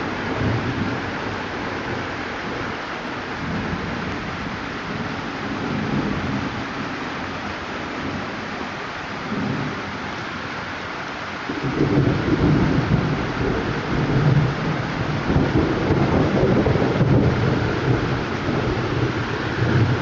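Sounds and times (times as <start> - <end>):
low thunder rumbling: 0.0 - 6.9, 11.5 - 20.0
heavy rain falling: 0.0 - 20.0.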